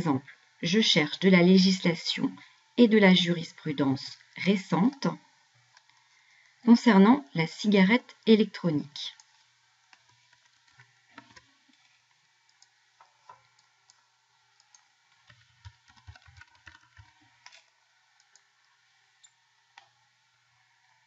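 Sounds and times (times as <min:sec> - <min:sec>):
keyboard typing: 0:14.6 - 0:17.6.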